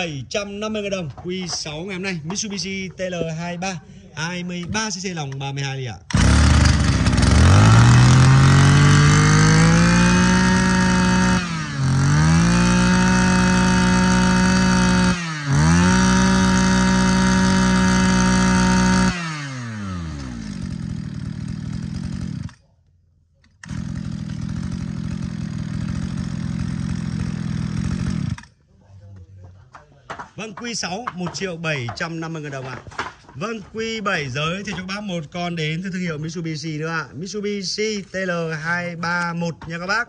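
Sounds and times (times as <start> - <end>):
brush cutter engine revving: 6.0 - 22.6, 23.6 - 28.6.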